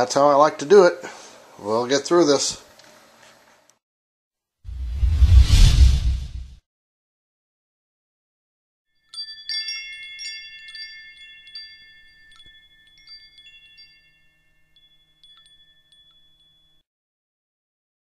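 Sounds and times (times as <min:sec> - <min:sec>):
wind chimes ringing: 0:08.9 - 0:16.8.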